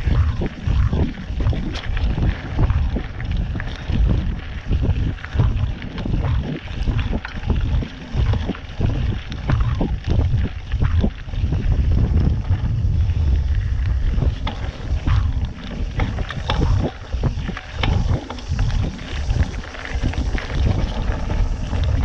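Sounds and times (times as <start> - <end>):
bike clicks and rattles: 0.0 - 22.0
tyre noise on dirt: 0.0 - 22.0
wind rumbling on microphone: 0.0 - 22.0.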